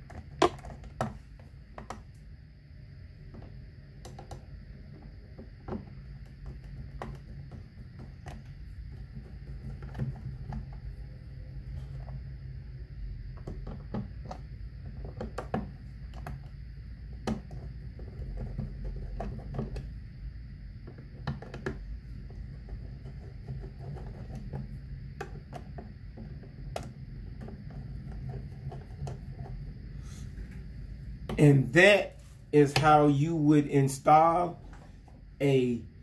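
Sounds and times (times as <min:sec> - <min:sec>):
low hum: 0:21.8 - 0:36.0.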